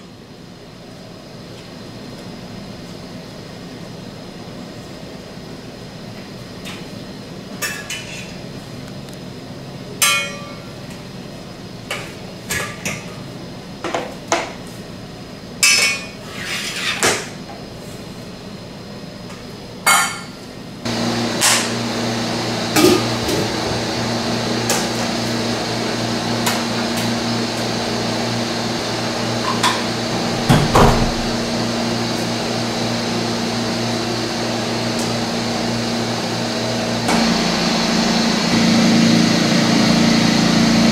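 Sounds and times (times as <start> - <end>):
machine hum: 20.8 - 40.9.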